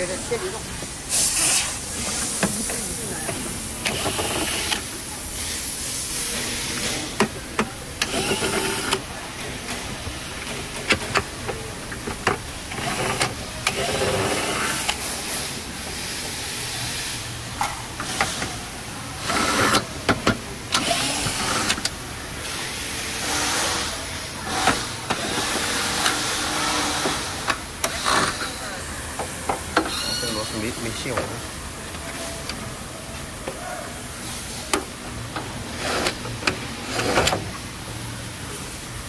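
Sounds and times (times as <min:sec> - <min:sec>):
steady hiss: 0:00.0 - 0:07.2.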